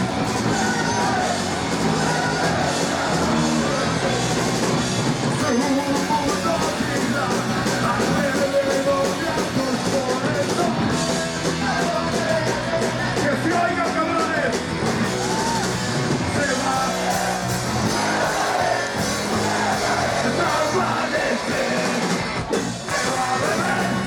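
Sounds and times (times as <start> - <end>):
ska-punk band playing live: 0.0 - 24.0
person singing: 5.4 - 14.3.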